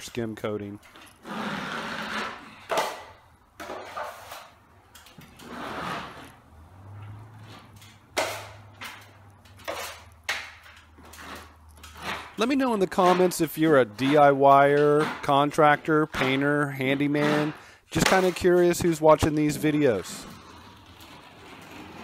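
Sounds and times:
knife spreading compound on ceiling: 0:01.0 - 0:04.6, 0:05.2 - 0:06.4, 0:07.4 - 0:22.0
taping knife scraping metal pan: 0:05.4 - 0:06.4, 0:09.6 - 0:20.8.

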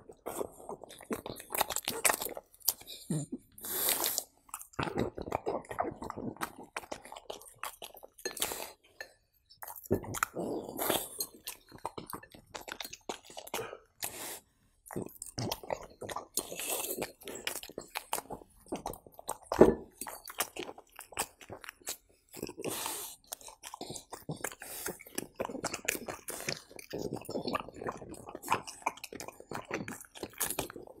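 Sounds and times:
dog chewing and smacking lips: 0:09.5 - 0:14.2, 0:14.9 - 0:31.0.

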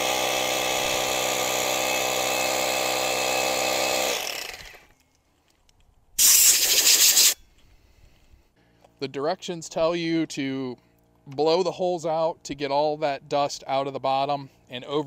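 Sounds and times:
hammer drill drilling concrete: 0:00.0 - 0:04.9, 0:06.2 - 0:07.4
air hiss: 0:06.2 - 0:07.4.

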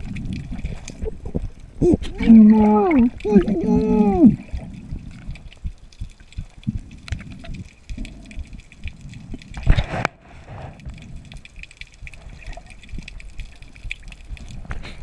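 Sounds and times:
fine crackle: 0:04.4 - 0:15.0.

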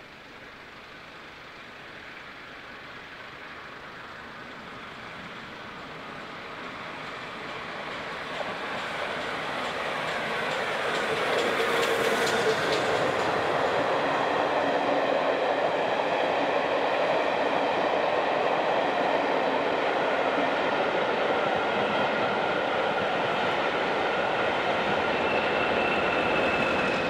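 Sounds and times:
steam train passing: 0:00.0 - 0:27.0
train wheel clicks: 0:07.4 - 0:13.8.

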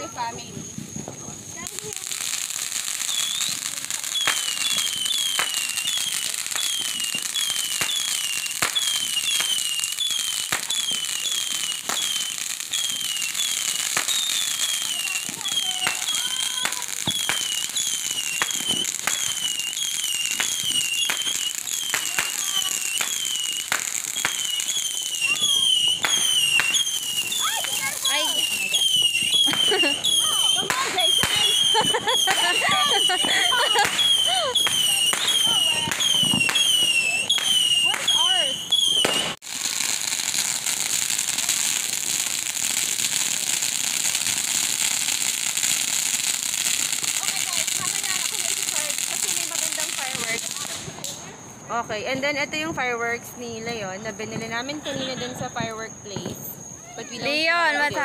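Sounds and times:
fireworks hissing: 0:00.0 - 0:58.0
fireworks popping: 0:00.0 - 0:58.0
whistle-like falling chirp: 0:03.0 - 0:39.4.

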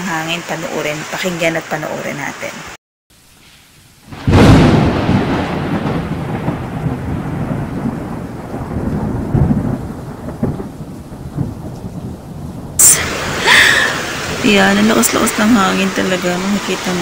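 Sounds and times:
rain hiss: 0:00.0 - 0:17.0
thunder crack and rumble: 0:04.1 - 0:15.8.

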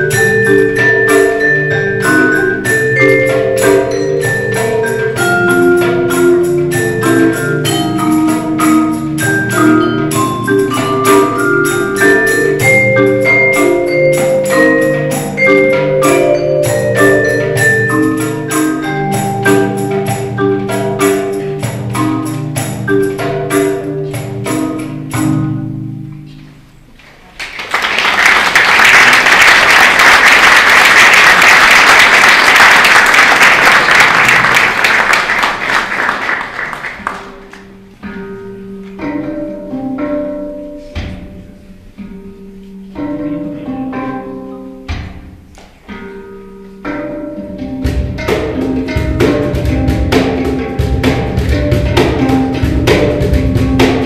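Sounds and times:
handpan notes ringing: 0:00.0 - 0:26.7, 0:37.3 - 0:54.0
marimba ensemble playing: 0:00.0 - 0:26.9, 0:28.9 - 0:54.0
audience applauding: 0:27.2 - 0:37.7.

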